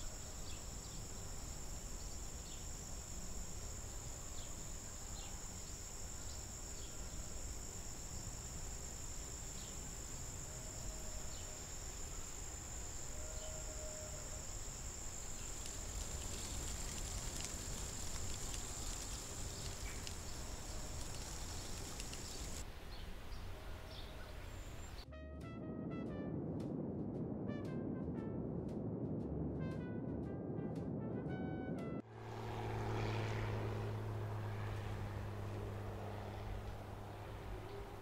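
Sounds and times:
insect chorus ringing: 0.0s - 25.0s
low wind-like rumble: 0.0s - 38.0s.

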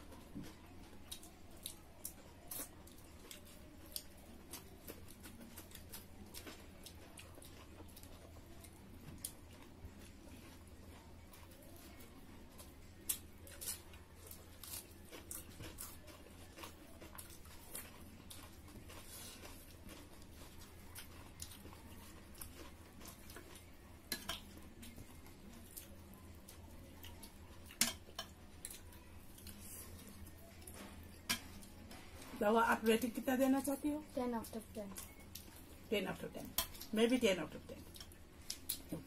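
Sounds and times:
soft chewing: 0.0s - 39.0s.

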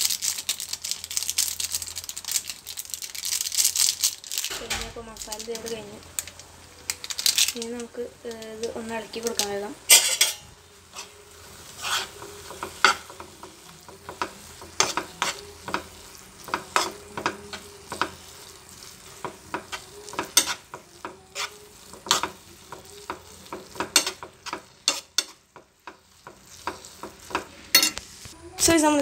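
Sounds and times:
metal spoon scraping a pan: 9.2s - 28.2s.

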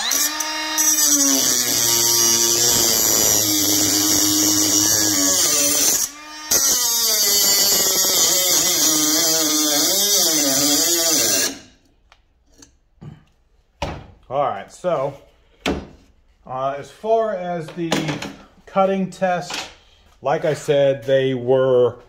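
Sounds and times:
cut-off tool grinding metal: 0.0s - 11.7s.

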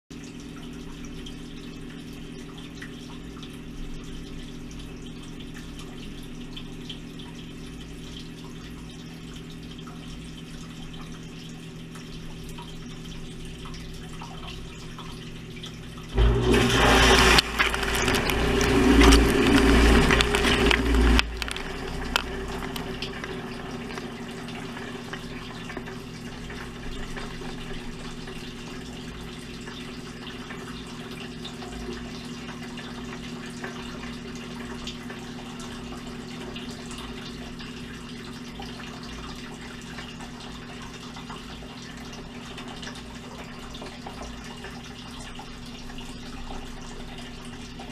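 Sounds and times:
dishwasher pump humming: 0.2s - 47.9s
water sloshing: 16.0s - 28.5s
rush of spraying water: 16.2s - 25.1s.

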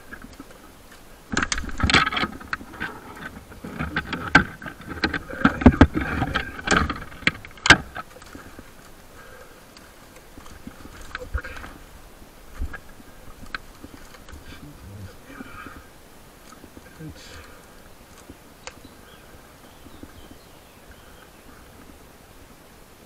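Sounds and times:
rope gear rustling and clatter: 0.0s - 20.3s
sharp clicks and knocks: 0.1s - 8.9s.

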